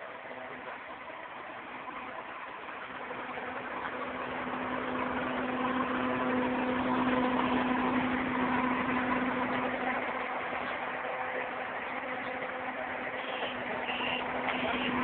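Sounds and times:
road roller diesel engine droning: 0:00.0 - 0:15.0.

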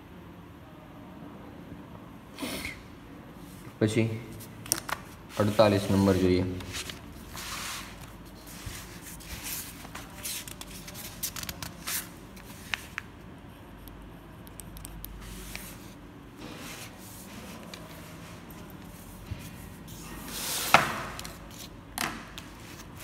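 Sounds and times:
paper rustling: 0:04.4 - 0:13.1
notebook pages turning: 0:06.6 - 0:13.1.

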